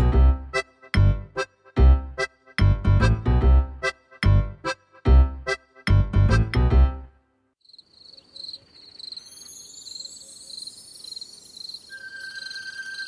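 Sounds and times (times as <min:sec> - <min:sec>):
bouncy children's tune: 0:00.0 - 0:07.3
crickets chirping: 0:07.6 - 0:13.0.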